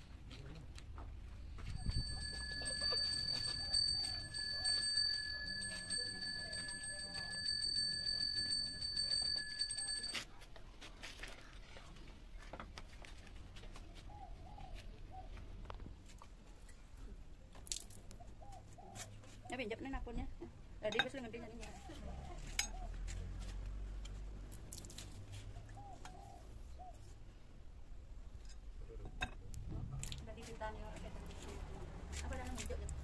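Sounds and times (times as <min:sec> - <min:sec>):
handbell ringing rapidly: 0:01.8 - 0:10.2.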